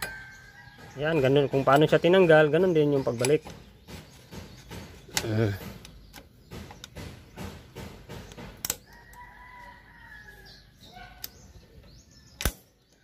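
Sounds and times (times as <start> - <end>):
sharp metallic click: 12.4 - 13.0.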